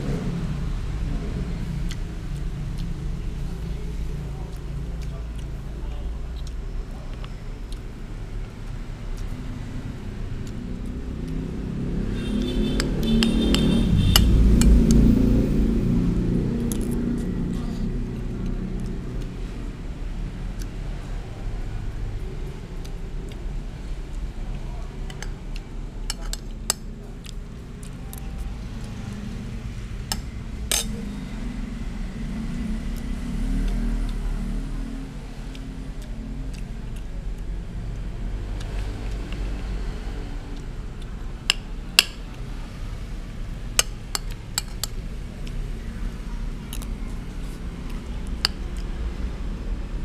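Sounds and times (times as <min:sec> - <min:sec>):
metal spoon clinking on dishes: 0:30.1 - 0:31.0.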